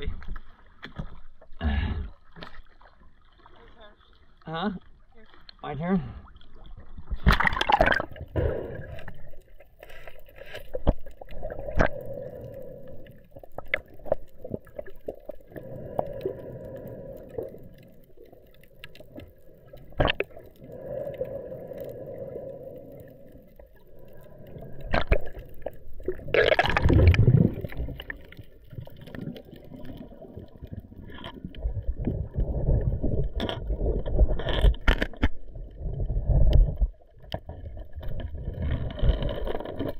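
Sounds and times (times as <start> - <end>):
sharp underwater clicks: 33.1 - 35.4.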